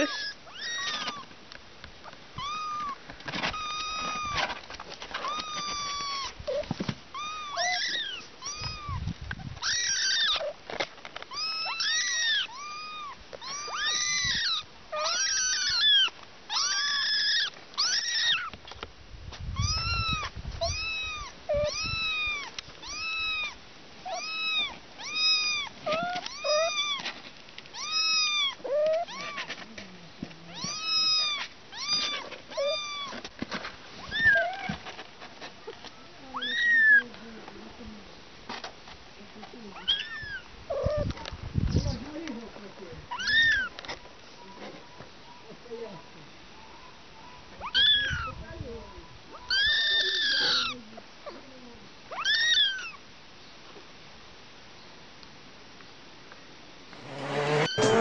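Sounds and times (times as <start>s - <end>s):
kittens mewing: 0.0s - 1.3s, 2.4s - 4.6s, 5.2s - 10.6s, 11.3s - 18.6s, 19.6s - 27.0s, 30.5s - 33.2s, 39.8s - 41.3s, 47.4s - 48.4s, 49.3s - 53.0s, 57.0s - 58.0s.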